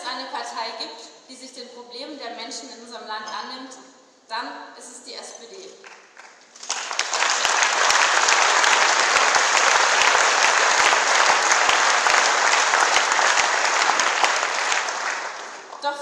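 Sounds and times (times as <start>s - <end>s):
audience applauding: 5.9s - 16.0s.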